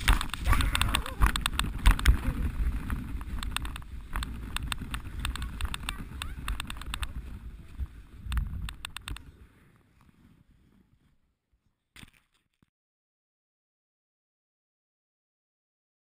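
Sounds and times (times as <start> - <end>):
sledge runners scraping snow: 0.0 - 8.6, 9.3 - 11.3.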